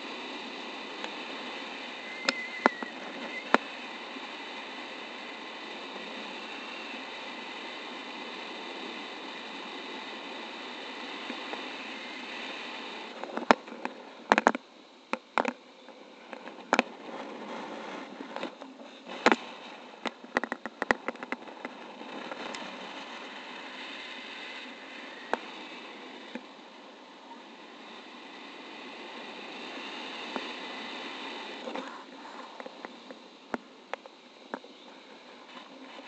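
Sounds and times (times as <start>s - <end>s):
clicks and knocks on camera: 13.2s - 15.6s, 20.0s - 22.6s
wind rushing over microphone: 16.1s - 36.0s.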